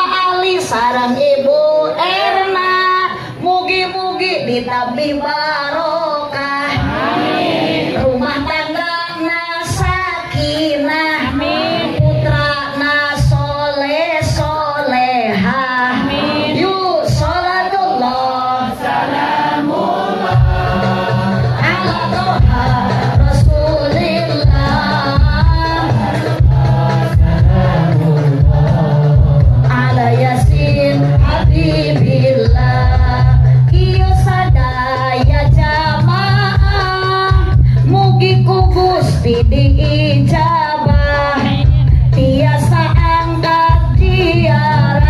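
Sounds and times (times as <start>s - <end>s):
woman singing into microphone: 0.0s - 19.7s, 20.3s - 45.0s
music over loudspeakers: 0.0s - 45.0s
heavy low beat: 19.8s - 45.0s.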